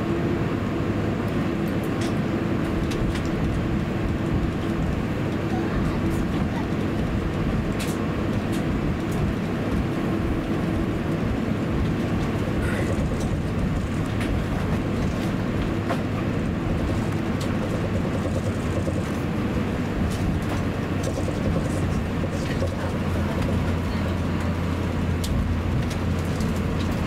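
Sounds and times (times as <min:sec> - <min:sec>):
air conditioning: 0:00.0 - 0:27.0
aircraft engines idling: 0:00.0 - 0:27.0.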